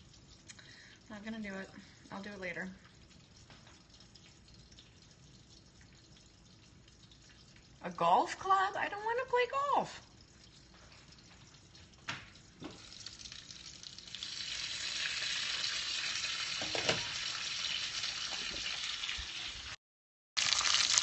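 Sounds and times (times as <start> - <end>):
bacon sizzling in a pan: 12.6 - 19.8, 20.4 - 21.0.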